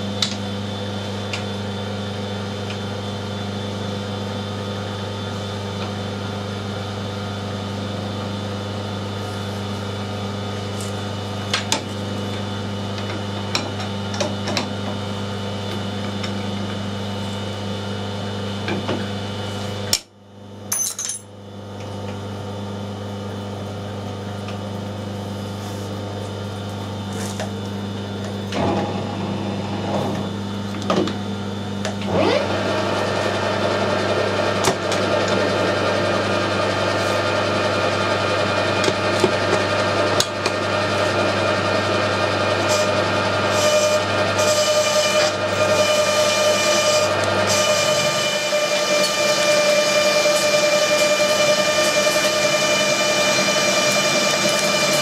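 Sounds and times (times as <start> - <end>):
metal lathe humming: 25.2 - 55.0.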